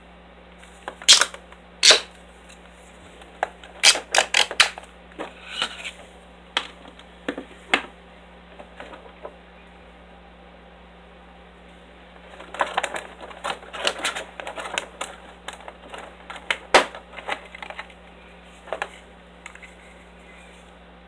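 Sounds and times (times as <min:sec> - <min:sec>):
plastic packaging clicking and crackling: 0:03.2 - 0:04.9, 0:12.2 - 0:18.0.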